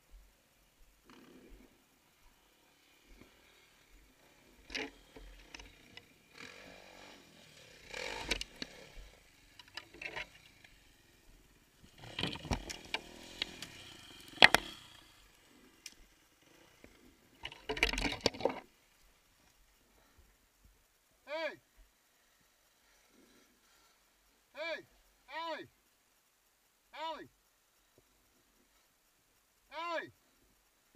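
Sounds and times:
dirt bike engines revving: 1.1 - 17.6.

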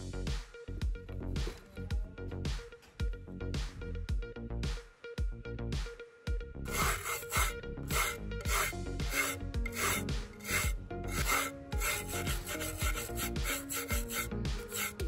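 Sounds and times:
wire brush scrubbing rusted metal: 6.7 - 15.0.

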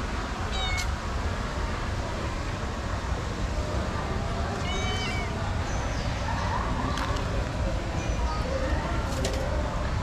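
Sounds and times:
cat meowing: 0.5 - 0.9, 4.6 - 5.4.

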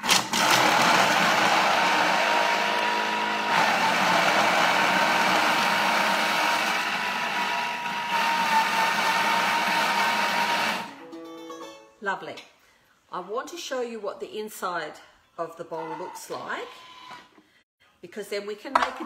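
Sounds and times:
vegetables churning: 0.0 - 10.7
food processor motor whirring: 0.0 - 10.9.

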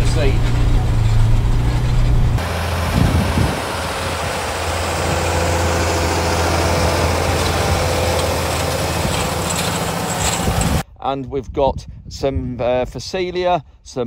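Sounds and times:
tractor engine running: 0.0 - 10.8.

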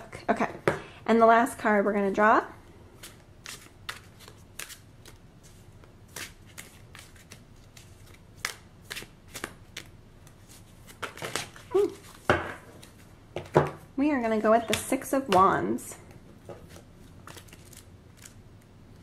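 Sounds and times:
cards being shuffled: 3.0 - 13.1, 16.4 - 19.0.

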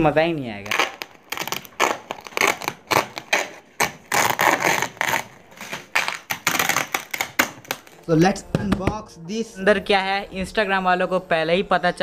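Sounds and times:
plastic mailer bag ripping open: 0.6 - 8.0.

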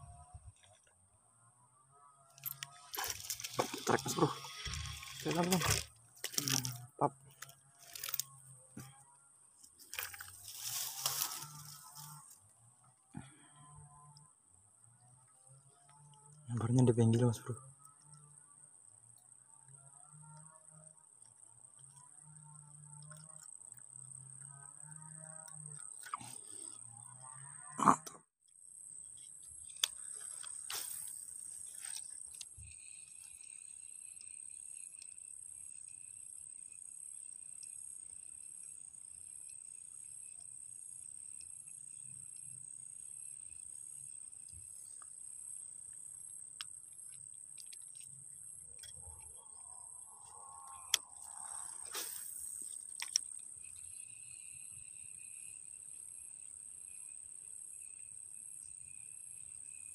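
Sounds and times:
lower insect trill: 0.0 - 59.9
high-pitched insect chorus: 2.3 - 9.0, 9.8 - 12.4, 28.6 - 59.9.

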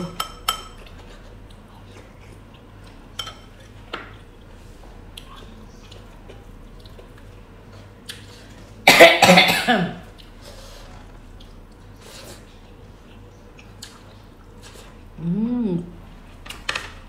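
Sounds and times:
woman coughing: 8.9 - 10.0.

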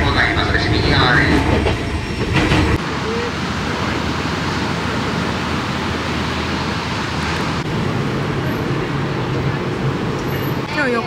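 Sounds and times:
vehicle rumble and hiss: 2.8 - 11.0.

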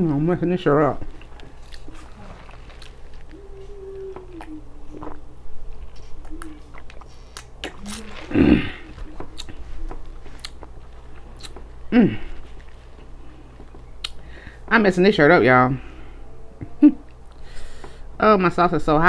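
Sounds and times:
sipping and swallowing: 1.1 - 14.3
person humming mm: 3.3 - 10.5, 11.9 - 12.5.

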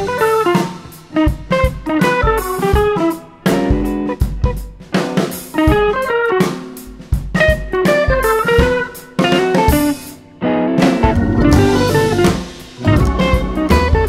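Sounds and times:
drums: 0.0 - 14.0
plucked string notes: 10.8 - 14.0.

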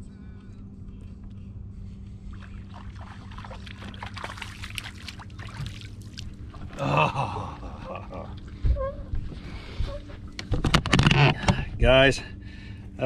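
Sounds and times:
steady low hum: 0.0 - 13.0
fish splashing at water surface: 2.4 - 6.8.

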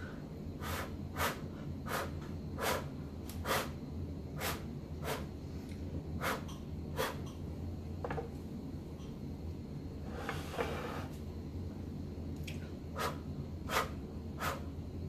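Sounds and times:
person blowing short puffs: 0.6 - 3.8, 4.4 - 5.3.

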